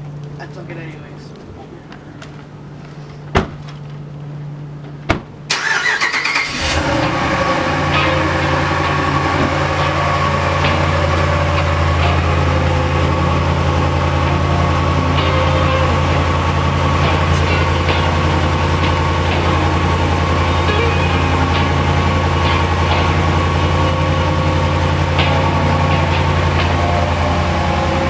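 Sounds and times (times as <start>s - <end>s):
door slams: 3.3s - 3.6s
truck engine starting and idling: 5.4s - 28.0s.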